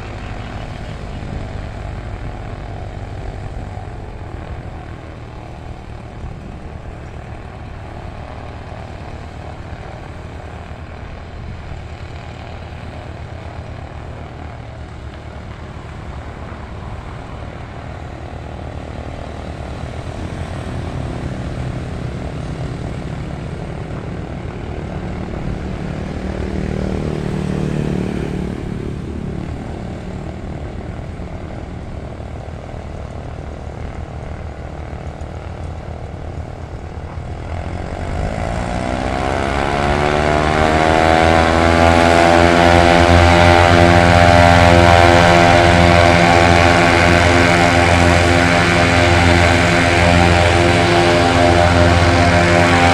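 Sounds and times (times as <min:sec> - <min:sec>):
twin propeller engines droning: 0:00.0 - 0:52.9.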